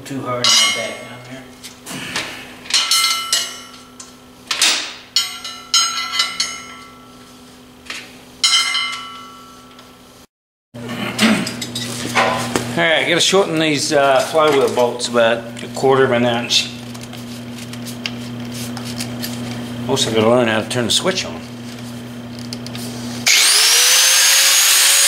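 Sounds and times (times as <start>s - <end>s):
metal parts clanking: 4.5s - 7.0s.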